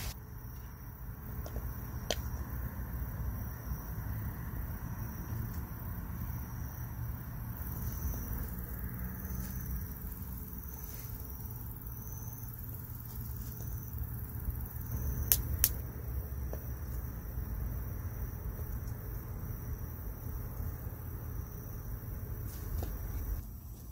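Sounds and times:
steady low rumble: 0.0 - 23.9
sharp clicks: 15.2 - 15.8.

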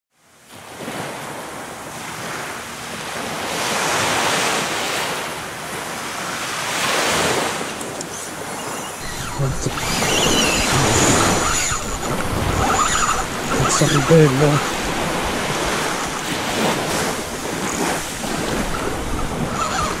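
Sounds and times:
surf washing up beach: 0.3 - 20.0
wind buffeting microphone: 7.3 - 20.0.

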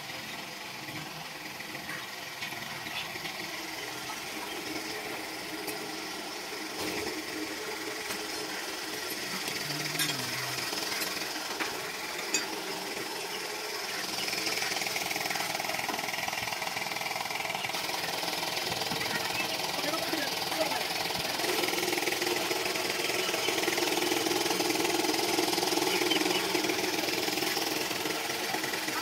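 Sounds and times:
machine running with fast rattle: 0.0 - 29.0.

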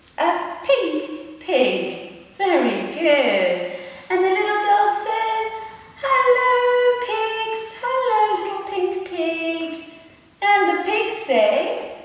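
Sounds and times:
woman singing unaccompanied: 4.1 - 9.8.

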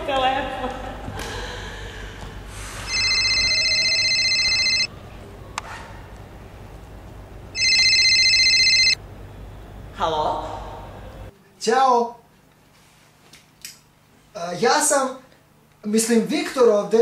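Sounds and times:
phone ringing trilling tone: 2.9 - 4.9, 7.6 - 9.0.

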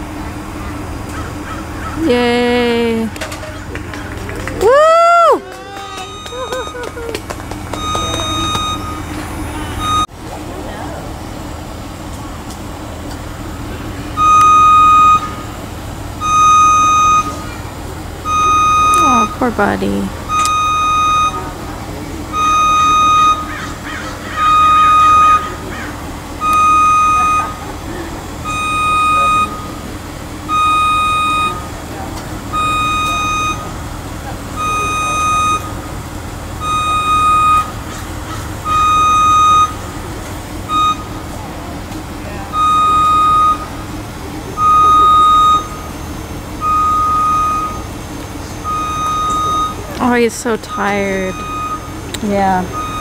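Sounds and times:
engine humming: 0.0 - 53.0
warning beeper beeping: 5.8 - 7.0, 7.7 - 10.1, 14.0 - 17.6, 18.2 - 23.6, 24.3 - 25.7, 26.4 - 27.7, 28.4 - 31.8, 32.4 - 37.8, 38.6 - 40.0, 40.7 - 41.2, 42.5 - 53.0.

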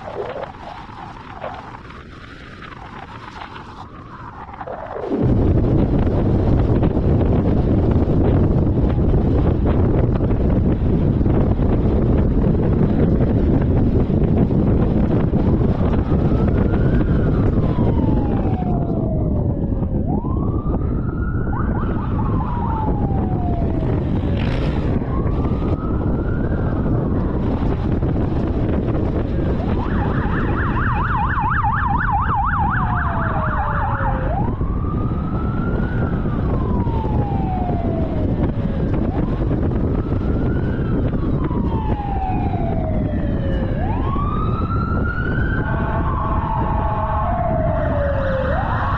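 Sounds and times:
police siren wailing: 0.0 - 48.9
road and wind rumble: 0.0 - 48.9
siren yelping rapidly: 4.1 - 5.2, 15.5 - 24.3, 24.9 - 27.7, 29.4 - 48.9.

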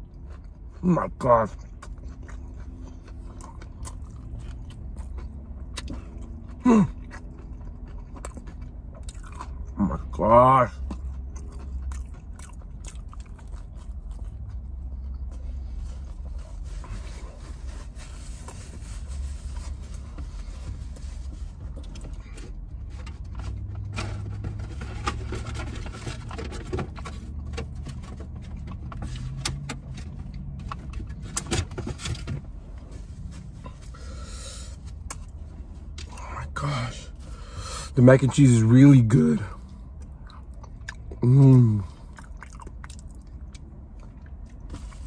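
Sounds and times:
person chewing: 0.0 - 10.1, 10.7 - 16.9, 33.5 - 36.5, 39.5 - 45.0
low rumble inside car: 0.0 - 45.0.

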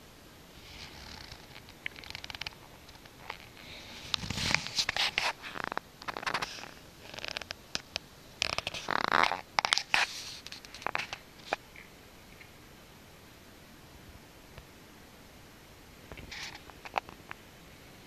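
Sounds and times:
clothing rustling against microphone: 0.6 - 7.6, 8.4 - 11.8.

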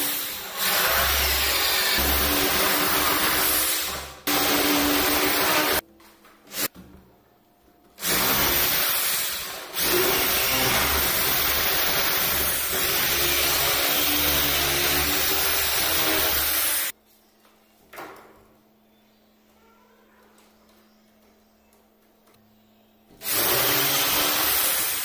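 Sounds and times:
electric drill boring into wood: 0.0 - 5.8, 8.0 - 16.9, 23.2 - 25.0.

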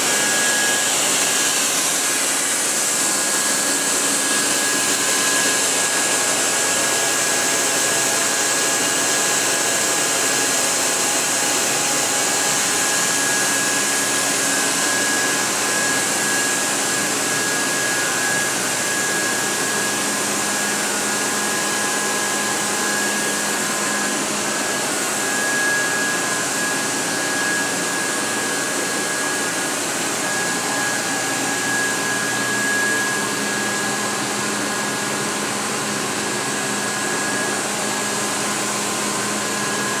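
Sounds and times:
thin high whine: 11.2 - 40.0.

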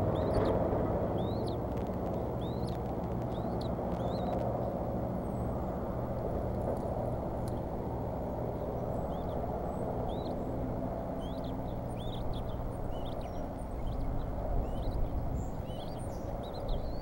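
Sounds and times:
low rumble: 0.0 - 17.0
eaglets chirping: 1.1 - 4.6, 8.5 - 17.0.

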